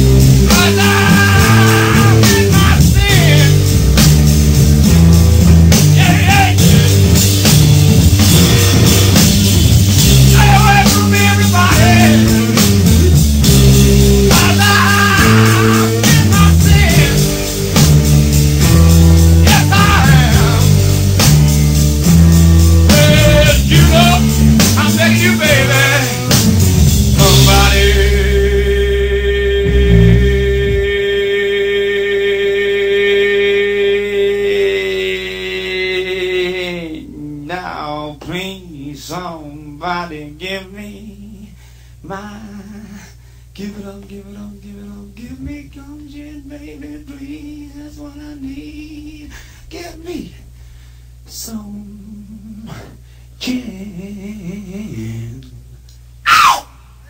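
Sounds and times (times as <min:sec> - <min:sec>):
person singing without words: 0:00.0 - 0:03.8, 0:05.7 - 0:07.4, 0:10.0 - 0:17.8, 0:18.6 - 0:21.1, 0:22.1 - 0:50.4, 0:51.3 - 0:57.0
wavering lead guitar line: 0:00.0 - 0:31.6
sustained bass notes: 0:00.0 - 0:37.6
steady low hum: 0:00.0 - 0:57.0.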